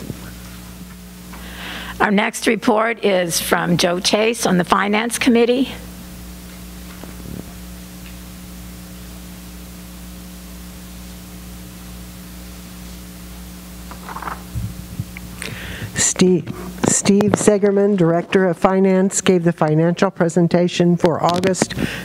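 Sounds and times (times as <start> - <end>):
electrical mains hum and hiss: 0.0 - 22.0
papers handled at microphone: 13.8 - 15.2.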